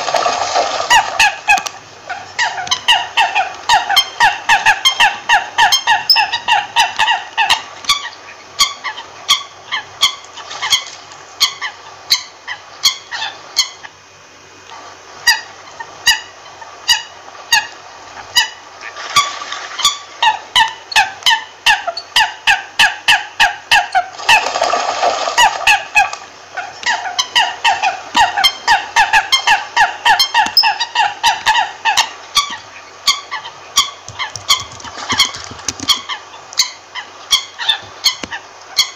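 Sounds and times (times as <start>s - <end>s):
coot calls: 0.8s - 13.9s.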